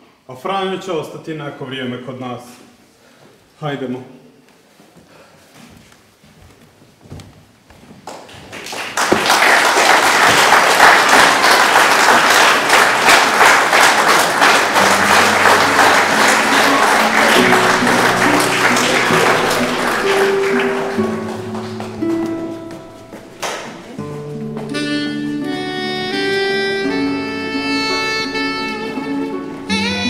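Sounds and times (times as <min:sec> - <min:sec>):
audience applauding: 0:08.0 - 0:24.0
music with sustained notes: 0:14.4 - 0:30.0.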